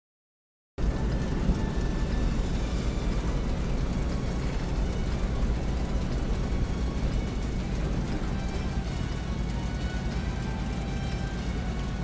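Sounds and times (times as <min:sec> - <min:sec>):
car road and engine rumble: 0:00.8 - 0:12.0.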